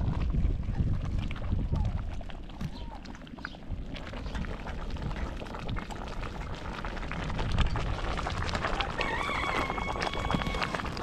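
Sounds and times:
pot boiling and popping: 0.0 - 11.0.

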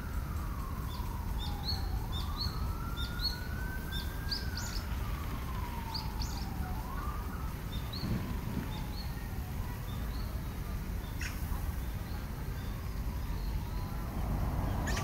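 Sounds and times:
siren wailing: 0.0 - 10.8
low outdoor rumble: 0.0 - 15.0
small birds chirping: 0.6 - 15.0.

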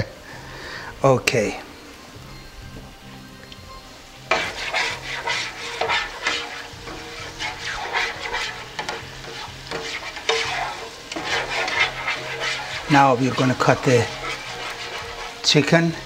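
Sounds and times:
spatula scraping a metal pan: 4.2 - 16.0.

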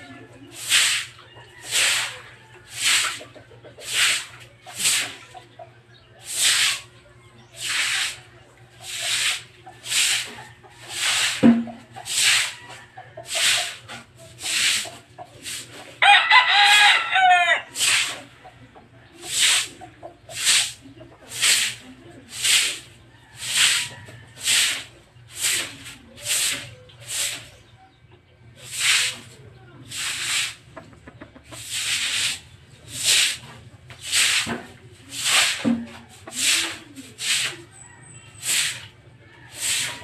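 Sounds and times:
broom scrubbing wet concrete: 0.0 - 5.6, 6.2 - 18.5, 19.1 - 27.7, 28.6 - 40.0
rooster crowing: 16.0 - 17.8.

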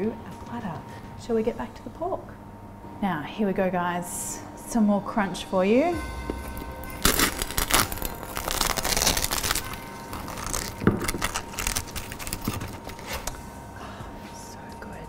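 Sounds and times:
knife crunching through crackling: 6.8 - 13.3.

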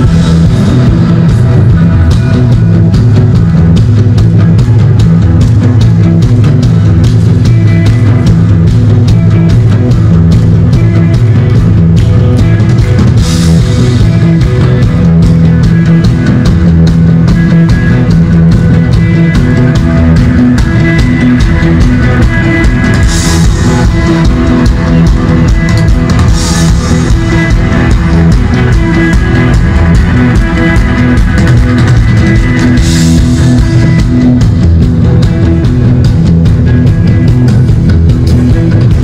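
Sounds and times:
folk-rock band playing: 0.0 - 39.0.

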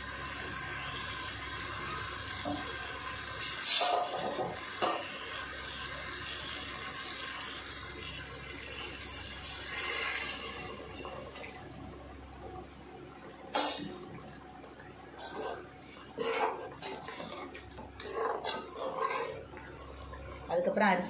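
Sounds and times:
sizzling hiss: 0.0 - 10.3.

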